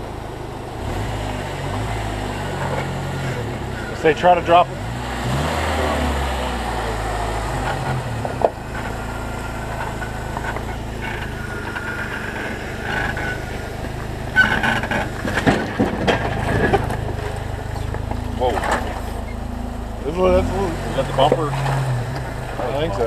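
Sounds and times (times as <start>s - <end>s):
engine running at low revs: 0.0s - 23.0s
knocks and scrapes on rock: 12.8s - 19.2s.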